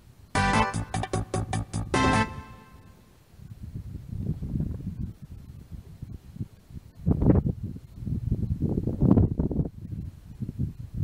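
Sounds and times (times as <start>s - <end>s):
rumbling and rustling at microphone: 3.4s - 11.0s.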